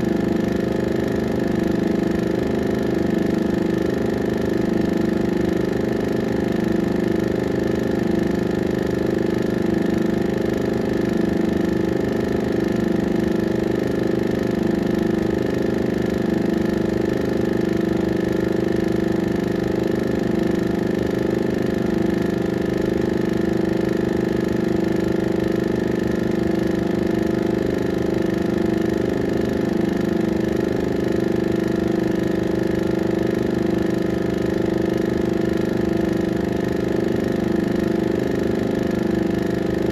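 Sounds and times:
film projector humming: 0.0s - 39.9s.

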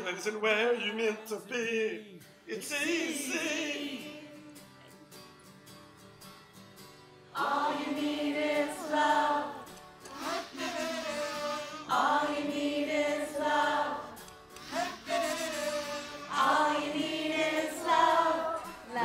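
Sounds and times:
group of voices singing: 0.0s - 4.7s, 7.4s - 19.0s.

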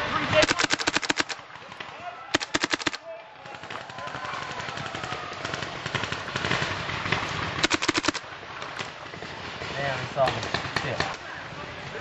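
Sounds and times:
distant paintball markers firing: 0.3s - 9.0s
paintball marker shots close by: 0.4s - 1.4s, 2.3s - 3.0s, 7.6s - 8.2s.

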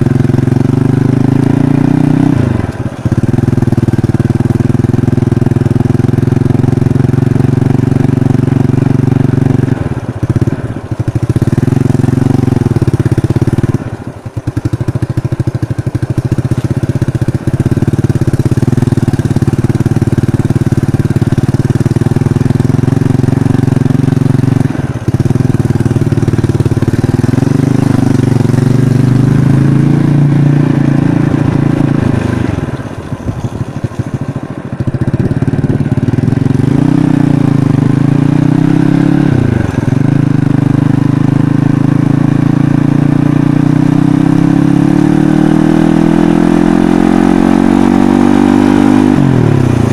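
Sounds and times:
motorcycle engine at low revs: 0.0s - 49.9s.

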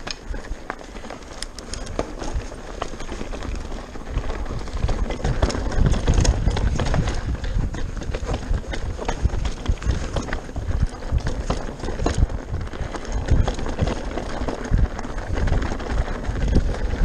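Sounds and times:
bike rattling over stones: 0.0s - 17.0s
tyres rumbling over dirt: 0.0s - 17.0s
wind buffeting microphone: 1.8s - 17.0s.

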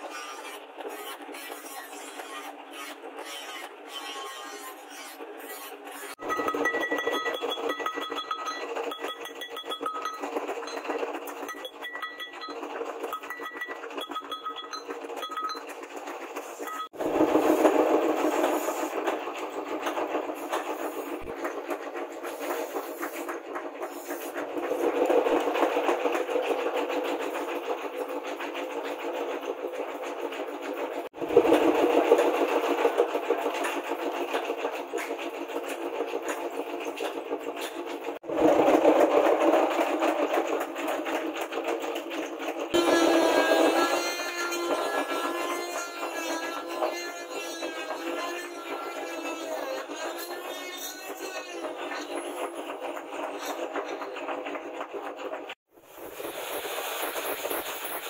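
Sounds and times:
hammer tapping metal: 6.2s - 15.8s.

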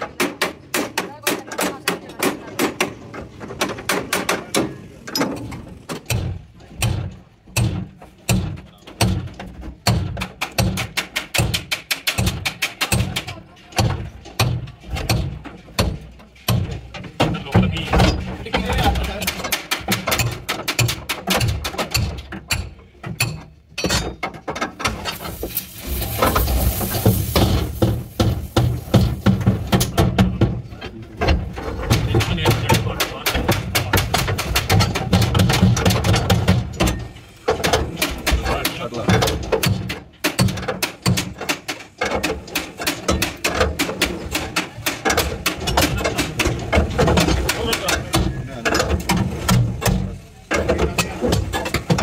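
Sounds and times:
steel pipes knocking on sheet metal: 6.0s - 30.6s, 31.9s - 48.4s
hammer knocking on sheet steel: 27.1s - 30.5s.

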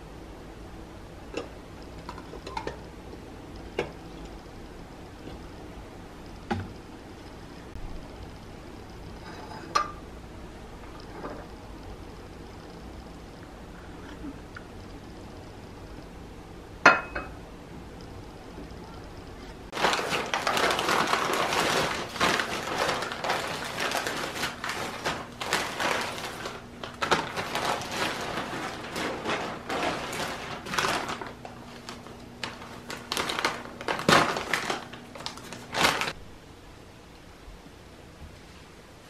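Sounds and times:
paper bags crinkling: 19.7s - 36.2s.

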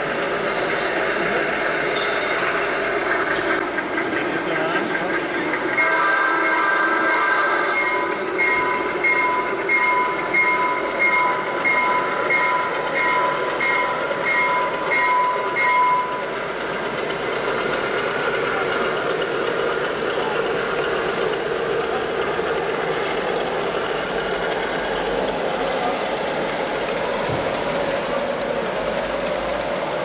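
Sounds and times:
rumble of passing train: 0.0s - 30.0s
bell-like ding: 0.4s - 2.5s
model train horn blast: 5.8s - 7.8s.

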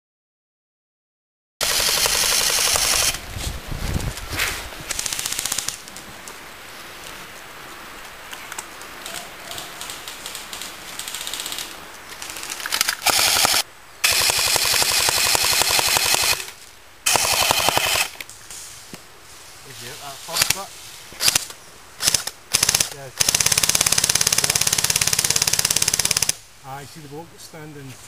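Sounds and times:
airsoft rifles firing bursts: 1.6s - 3.2s, 4.9s - 5.8s, 12.3s - 16.5s, 17.1s - 18.2s, 21.2s - 26.4s
faint scattered shots: 1.6s - 3.2s, 13.0s - 16.5s, 20.4s - 26.4s.

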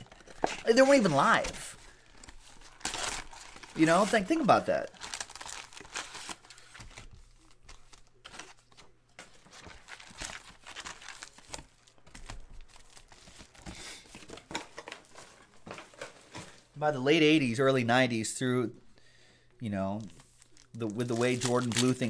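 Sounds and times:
card pack wrappers crinkling and tearing: 0.0s - 16.4s, 19.8s - 22.0s.

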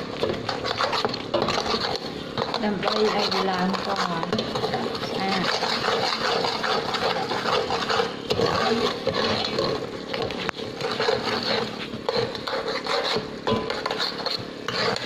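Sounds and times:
metal spoon scraping pot: 0.0s - 15.0s.

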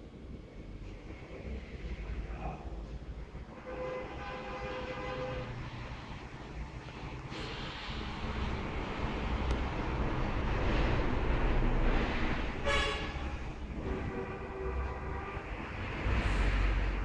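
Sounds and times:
rumbling background noise: 0.0s - 17.0s
horn blasts: 3.5s - 5.8s, 12.5s - 16.4s.

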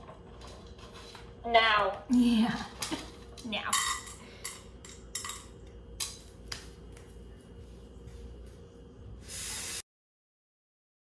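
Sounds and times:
dishes and cutlery clinking: 2.8s - 6.3s
brief hiss: 9.2s - 9.8s.

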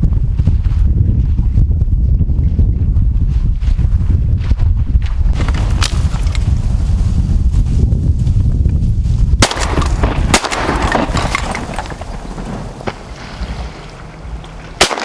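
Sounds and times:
wind buffeting microphone: 0.0s - 15.0s
sharp cracks: 5.4s - 6.5s, 9.4s - 15.0s
dry reeds rustling: 5.4s - 15.0s.

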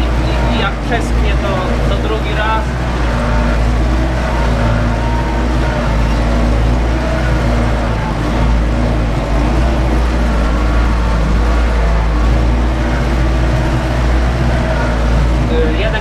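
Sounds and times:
tractor diesel engine under load: 0.0s - 16.0s.

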